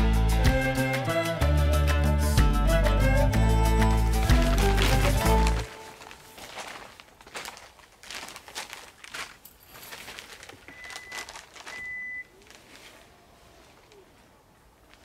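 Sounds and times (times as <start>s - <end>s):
camping gear rustling and crinkling: 3.8s - 15.0s.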